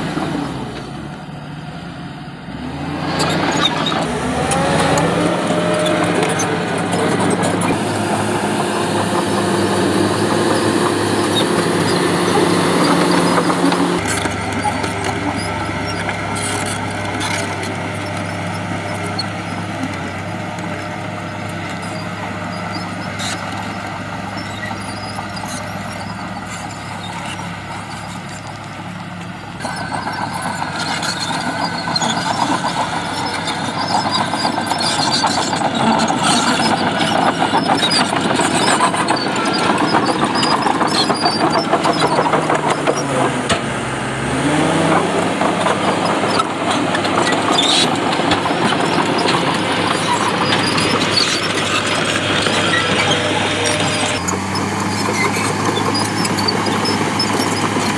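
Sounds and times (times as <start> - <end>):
diesel engines running: 0.0 - 57.9.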